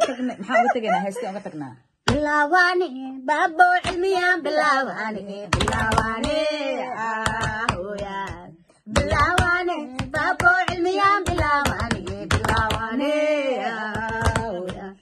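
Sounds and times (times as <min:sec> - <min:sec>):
women singing together: 0:02.0 - 0:15.0
hand claps: 0:05.5 - 0:06.5, 0:07.2 - 0:13.0, 0:13.9 - 0:14.9.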